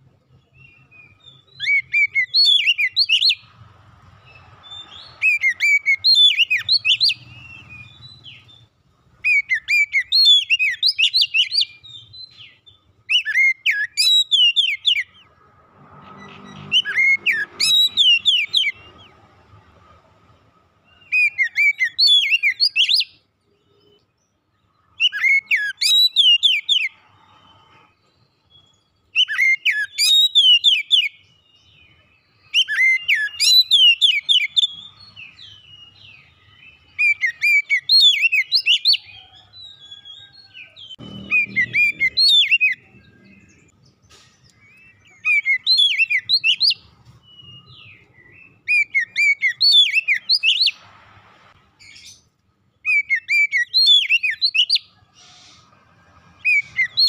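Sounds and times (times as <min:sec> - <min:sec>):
bird singing sweeping whistles: 0:00.6 - 0:03.5, 0:04.3 - 0:15.2, 0:16.3 - 0:18.9, 0:21.0 - 0:23.2, 0:25.0 - 0:27.5, 0:29.1 - 0:43.6, 0:44.6 - 0:50.8, 0:52.8 - 0:55.6, 0:56.4 - 0:57.0.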